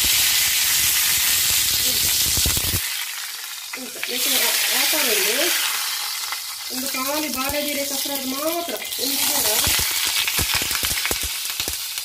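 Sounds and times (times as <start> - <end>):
water sizzling on hot pan: 0.0 - 12.0.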